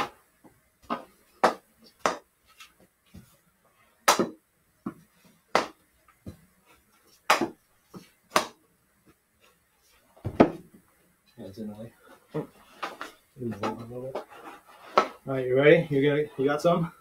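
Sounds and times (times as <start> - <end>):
hockey stick knocking ball: 0.8 - 2.3, 4.1 - 5.0, 5.6 - 6.4, 7.3 - 7.6, 10.2 - 10.7, 14.9 - 15.2.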